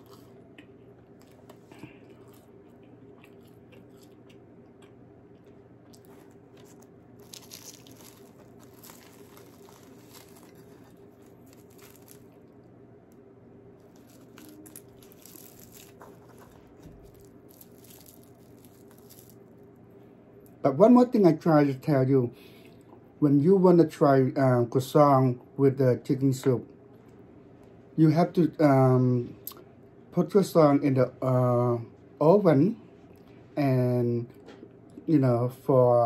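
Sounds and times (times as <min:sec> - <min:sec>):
chewing crunches: 0:00.0 - 0:12.7, 0:13.8 - 0:19.6
pastry crackling: 0:00.0 - 0:19.9.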